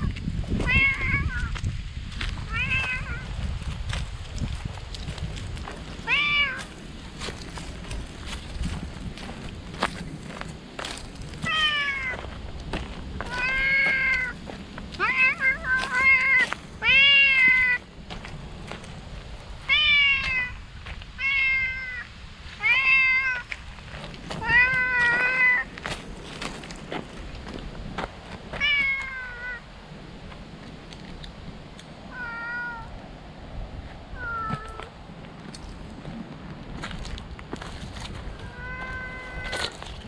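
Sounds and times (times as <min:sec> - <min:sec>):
cat meowing loudly: 0:00.0 - 0:01.6, 0:02.5 - 0:03.3, 0:06.0 - 0:06.7, 0:11.4 - 0:12.2, 0:13.2 - 0:14.4, 0:15.0 - 0:17.8, 0:19.6 - 0:20.6, 0:21.2 - 0:23.5, 0:24.4 - 0:25.7, 0:28.6 - 0:29.7, 0:32.1 - 0:32.9, 0:34.1 - 0:34.9, 0:38.3 - 0:39.8.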